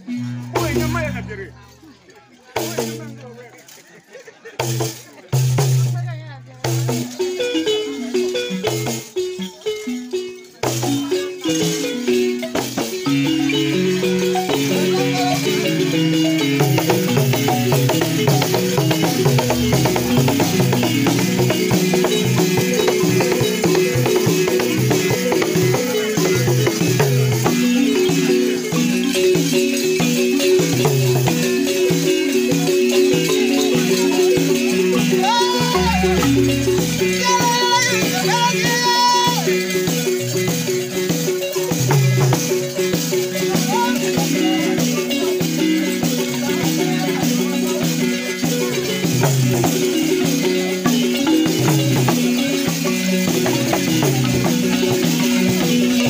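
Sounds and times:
drums beating: 0.0 - 1.9, 2.5 - 3.5, 4.4 - 56.0
wooden xylophones playing: 0.0 - 56.0
short high notes: 35.1 - 39.5.

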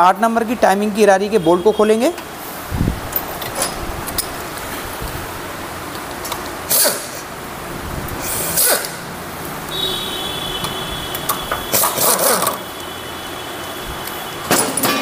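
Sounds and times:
tools clicking and scraping metal: 11.1 - 12.6.

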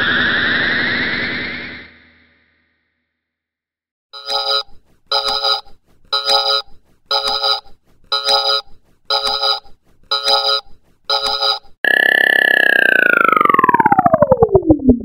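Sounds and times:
electronic beeping tone: 4.2 - 15.0.

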